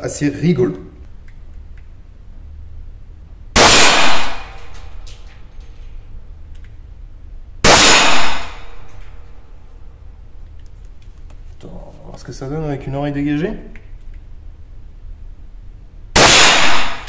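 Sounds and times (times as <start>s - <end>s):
suppressed pistol shots: 3.6s - 5.0s, 7.6s - 9.0s, 16.2s - 17.0s.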